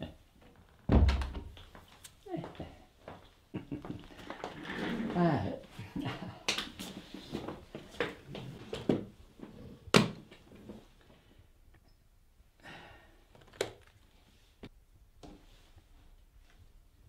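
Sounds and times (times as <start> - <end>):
sharp thunk: 0.9 - 1.5.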